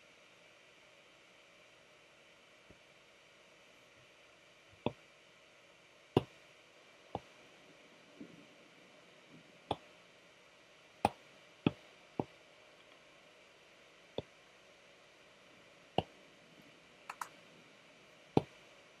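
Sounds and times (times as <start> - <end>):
faint steady hiss: 0.0 - 19.0
stylus tapping on glass screen: 17.1 - 17.3.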